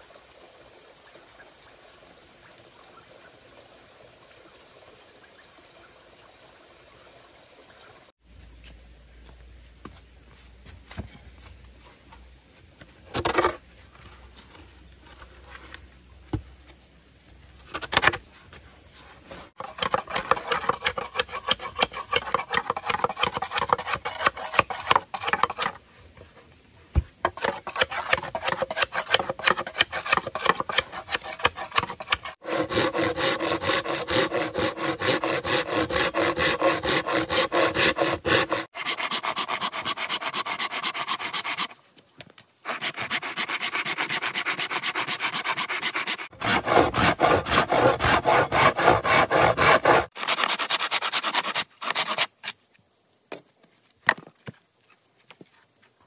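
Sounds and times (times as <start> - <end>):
scraping strokes on wood: 17.7 - 25.8, 27.2 - 41.8, 42.6 - 52.6.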